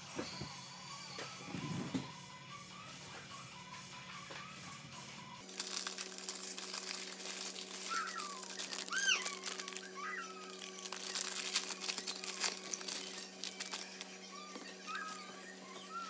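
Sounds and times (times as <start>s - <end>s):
plastic packet crinkling: 5.4s - 16.0s.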